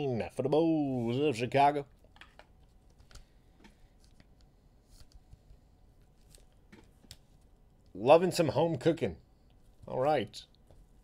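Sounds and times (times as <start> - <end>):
trading cards being handled: 2.0 - 7.9.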